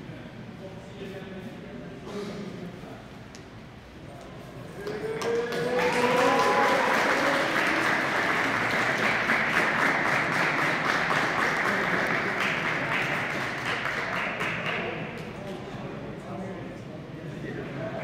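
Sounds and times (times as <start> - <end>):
crowd applauding: 4.8 - 15.0.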